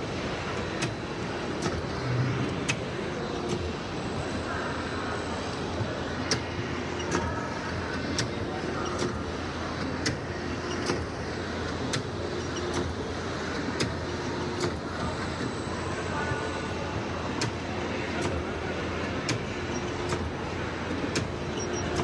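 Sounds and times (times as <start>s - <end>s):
machine hum: 0.0s - 22.0s
printer sharp clicks: 9.8s - 15.5s, 19.2s - 22.0s.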